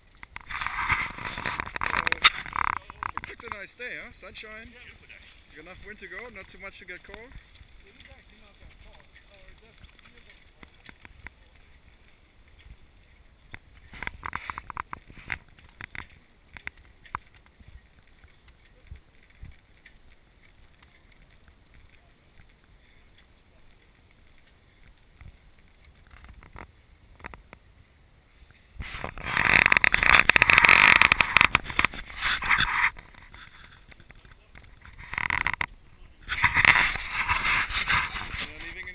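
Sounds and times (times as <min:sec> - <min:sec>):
scattered clicks: 0:00.1 - 0:12.8, 0:13.4 - 0:27.6, 0:29.0 - 0:38.9
camera rubbing and scraping: 0:00.2 - 0:12.8, 0:13.5 - 0:27.4, 0:28.8 - 0:38.9
boat rattling on wheeled dolly: 0:00.4 - 0:26.6.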